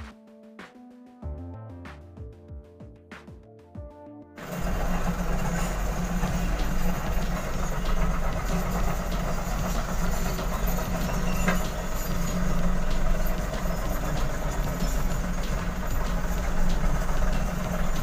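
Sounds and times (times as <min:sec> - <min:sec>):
diesel engines running: 0:04.4 - 0:18.0
steel tracks clanking: 0:04.4 - 0:18.0.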